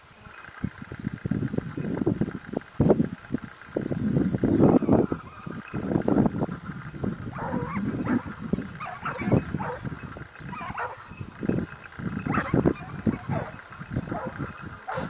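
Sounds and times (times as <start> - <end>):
hunting dogs baying: 7.2 - 15.0.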